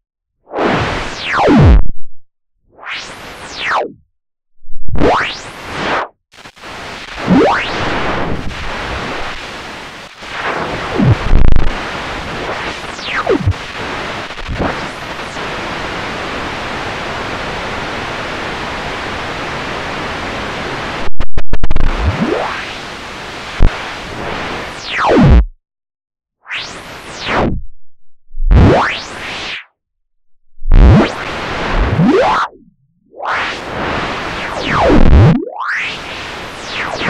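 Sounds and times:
white noise hiss: 13.5s - 22.2s
loud noise burst: 20.8s - 22.3s.

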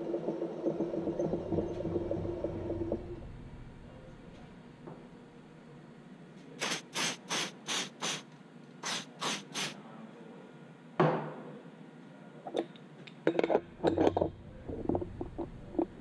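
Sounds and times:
air blow gun blasts: 6.6s - 8.2s, 8.8s - 9.8s.

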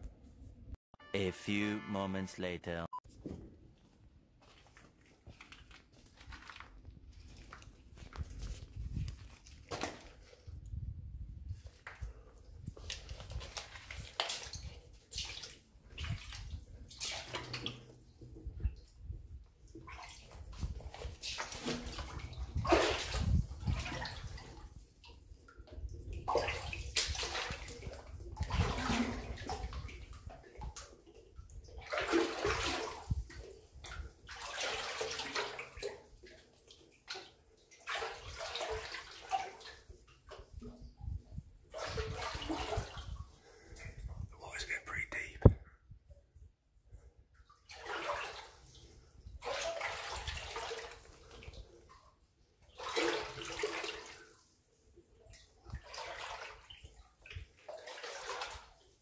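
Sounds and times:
feet wading through shallow water: 4.4s - 10.5s, 11.6s - 17.9s, 19.8s - 31.0s, 31.6s - 40.2s, 41.7s - 44.0s, 47.6s - 52.0s, 55.3s - 59.0s.

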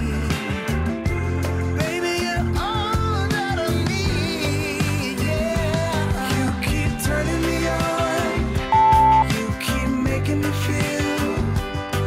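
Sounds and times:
pop song with bass and drums: 0.0s - 12.0s
melody line: 8.7s - 9.3s.

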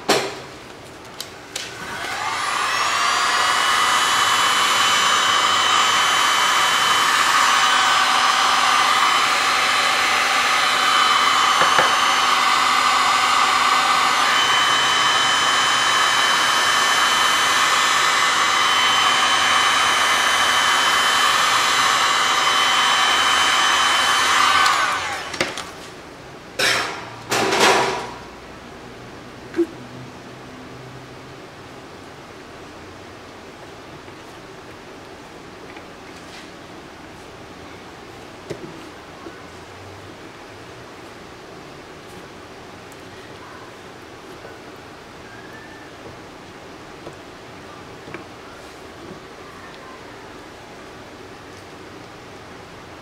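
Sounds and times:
heat gun fan whirring: 0.0s - 26.0s.

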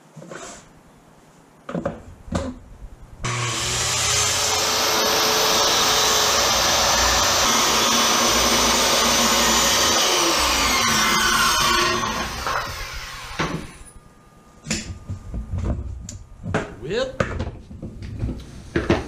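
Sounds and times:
circular saw cutting plywood: 3.2s - 13.8s.

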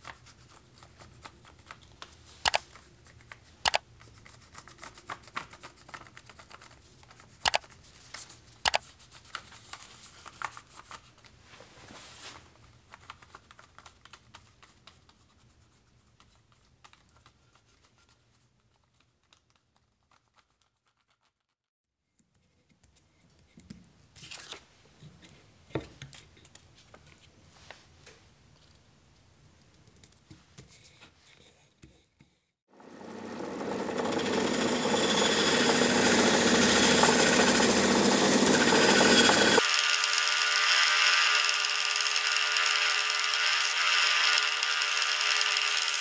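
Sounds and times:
paper crinkling: 0.0s - 11.4s, 12.0s - 21.5s
paper rustling: 0.0s - 21.4s, 24.2s - 24.7s.

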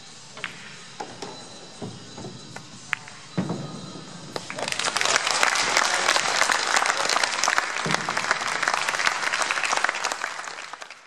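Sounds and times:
crowd applauding: 4.4s - 11.0s.

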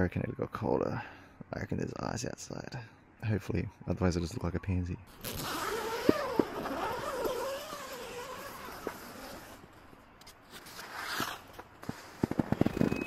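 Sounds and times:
zipper being pulled open: 5.1s - 9.7s, 10.5s - 13.0s
tent fabric rustling: 5.1s - 9.8s, 10.4s - 13.0s.

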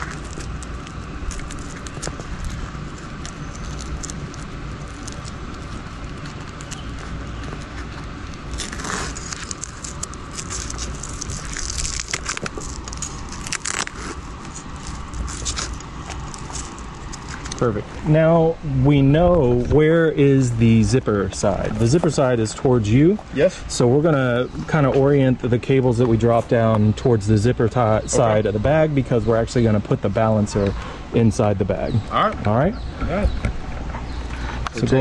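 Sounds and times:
hook-and-loop strap crackling: 0.0s - 17.8s
low background rumble: 0.0s - 35.0s.

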